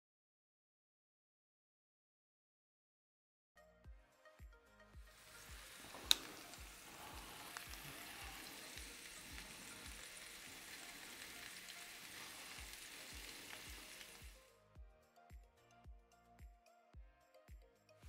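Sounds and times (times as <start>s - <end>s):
steaks sizzling on a grill: 5.1s - 14.4s.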